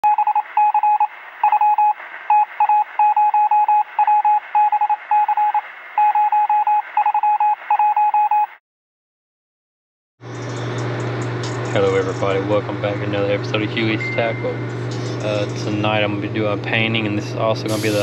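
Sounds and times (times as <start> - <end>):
rapid electronic beeps: 0.0 - 8.5
radio static hiss: 17.6 - 18.0.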